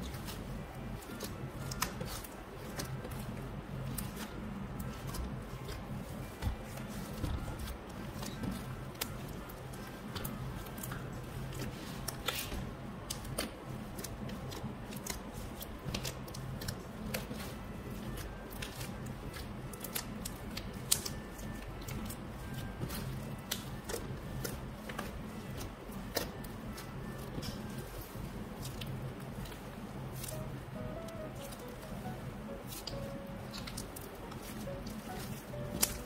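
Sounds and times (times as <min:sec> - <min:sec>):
slime crackling and popping: 0:07.6 - 0:36.0.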